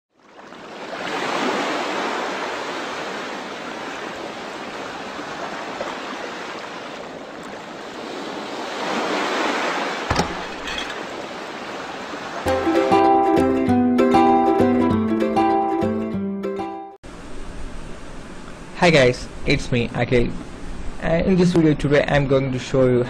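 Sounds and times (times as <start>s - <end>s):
sharp knocks: 10.0s - 11.0s
low thud: 10.1s - 10.7s.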